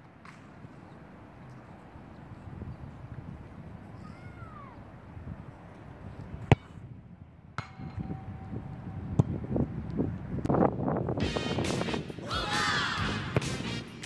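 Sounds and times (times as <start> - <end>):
ball clanging off metal crossbar: 7.6 - 8.4.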